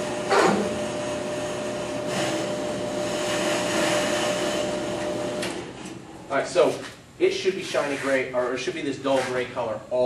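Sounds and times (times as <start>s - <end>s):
brake lathe hum and whine: 0.0s - 6.3s.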